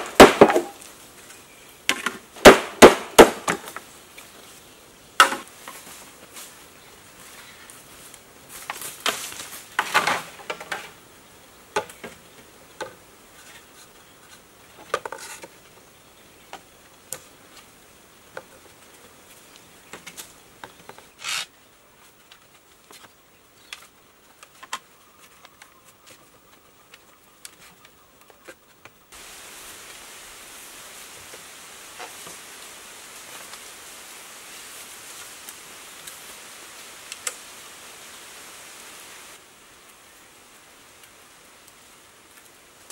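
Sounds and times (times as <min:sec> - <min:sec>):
bamboo poles knocking: 0:00.0 - 0:00.8, 0:01.9 - 0:03.8, 0:05.2 - 0:05.5
bamboo scraping: 0:00.0 - 0:04.6, 0:12.8 - 0:15.8, 0:18.4 - 0:26.3
steady hiss: 0:00.0 - 0:42.9.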